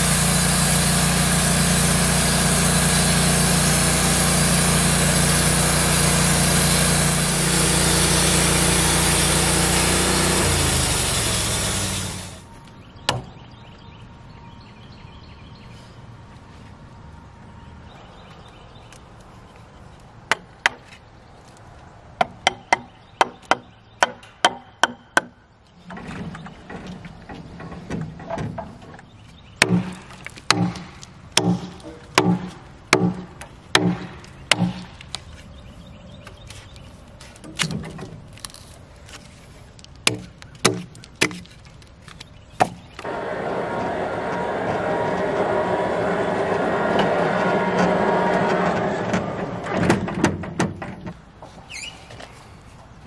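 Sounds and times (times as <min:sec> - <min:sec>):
steady running noise: 0:00.0 - 0:12.5, 0:43.0 - 0:50.4
hatchet chopping bark off log: 0:29.6 - 0:34.9, 0:40.0 - 0:41.4.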